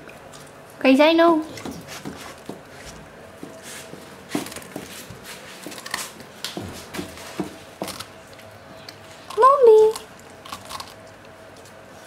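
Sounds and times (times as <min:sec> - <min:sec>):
dog crunching cabbage: 0:00.0 - 0:00.8, 0:03.6 - 0:12.0.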